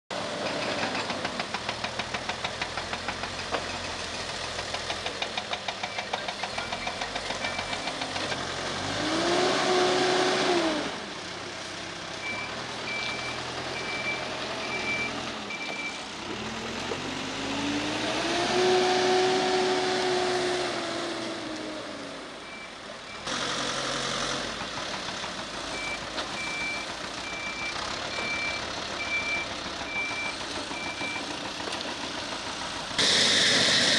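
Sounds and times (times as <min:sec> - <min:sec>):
backhoe diesel engine revving: 0:00.1 - 0:33.9
reversing alarm beeping: 0:12.2 - 0:16.0, 0:22.4 - 0:23.3, 0:25.7 - 0:31.3.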